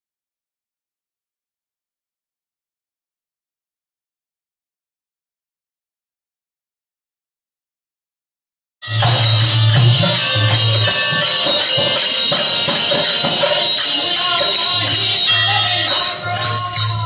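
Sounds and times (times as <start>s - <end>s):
high ringing tone: 8.8s - 17.0s
jingling hand percussion: 8.8s - 17.0s
voices singing: 9.3s - 17.0s.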